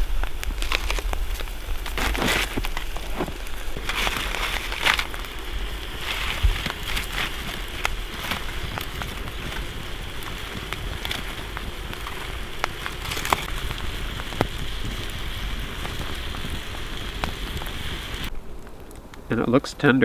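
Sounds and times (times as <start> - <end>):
meat sizzling in a frying pan: 5.0 - 18.3.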